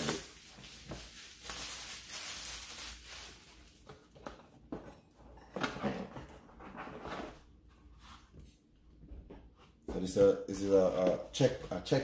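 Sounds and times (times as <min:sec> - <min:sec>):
plastic packaging crinkling: 0:00.0 - 0:03.9.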